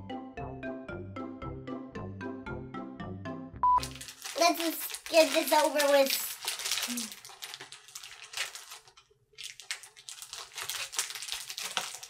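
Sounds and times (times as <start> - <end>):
plastic bags crinkling: 3.8 - 12.0.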